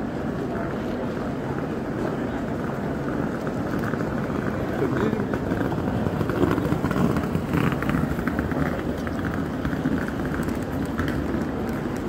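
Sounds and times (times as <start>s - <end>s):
indistinct crowd voices: 0.0s - 12.0s.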